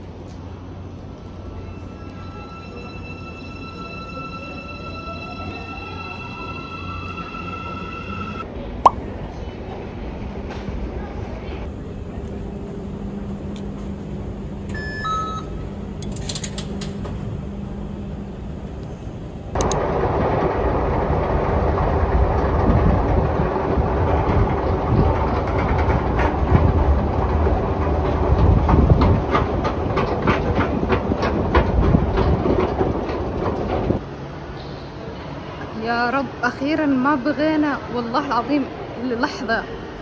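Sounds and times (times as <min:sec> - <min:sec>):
train running hum: 0:00.0 - 0:40.0
rapid clicking of train wheels: 0:19.6 - 0:34.0.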